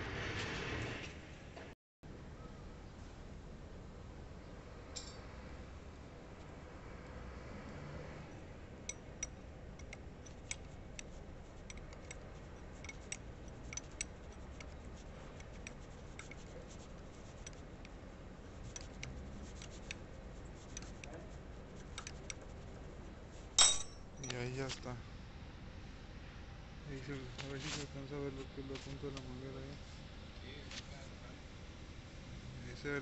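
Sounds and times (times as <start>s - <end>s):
small metallic clicks: 8.9s - 18.0s, 20.6s - 22.6s
wrench turning hose fitting: 8.9s - 18.0s, 18.6s - 22.7s.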